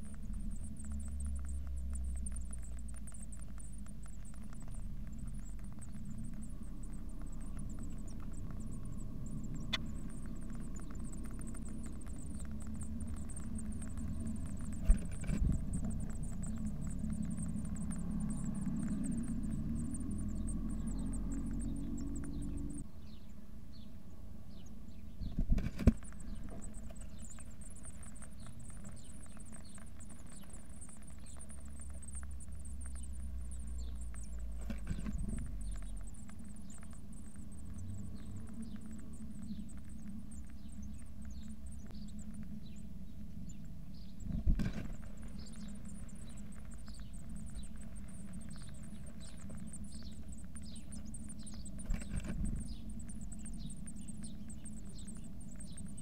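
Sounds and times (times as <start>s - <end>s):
low rumble: 0.0s - 23.8s, 24.5s - 56.0s
nestlings begging peeps: 0.0s - 56.0s
knocks and scrabbling in nest box: 4.2s - 20.1s, 25.4s - 30.2s.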